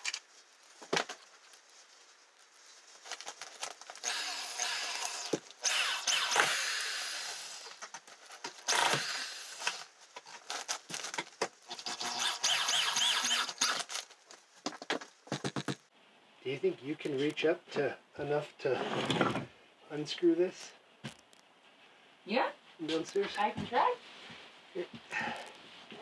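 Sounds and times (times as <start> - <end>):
electric drill boring into wood: 4.0 - 7.7, 8.6 - 9.8, 11.7 - 13.9.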